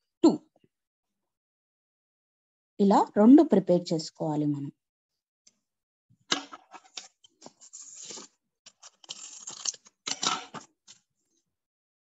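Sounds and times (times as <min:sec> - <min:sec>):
paper rustling and scraping: 0:06.5 - 0:11.0.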